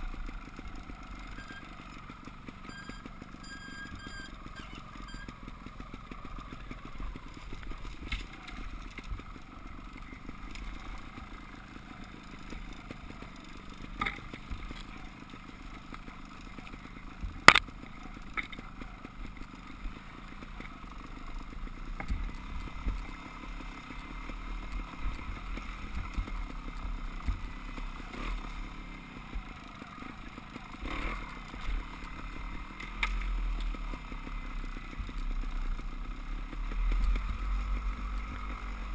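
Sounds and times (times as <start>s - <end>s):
bikes knocking and rattling: 0.0s - 38.9s
dirt bike engines: 0.0s - 38.9s.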